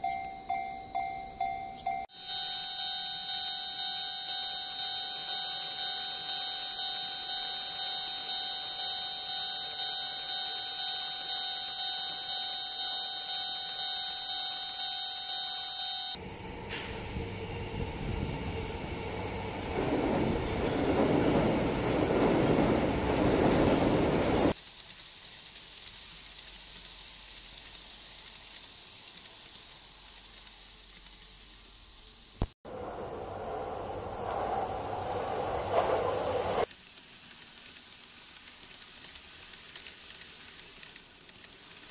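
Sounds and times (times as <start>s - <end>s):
level crossing alarm dinging: 0.0s - 16.2s
electric train rumbling past: 16.2s - 24.6s, 32.7s - 36.7s
faint clicks: 36.6s - 41.9s.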